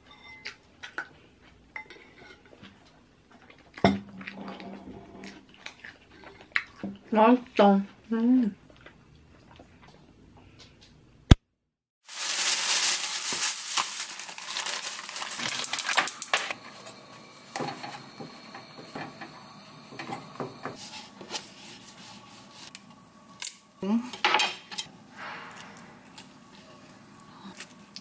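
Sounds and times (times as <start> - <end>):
pan and utensils clinking and scraping: 12.2 - 22.7.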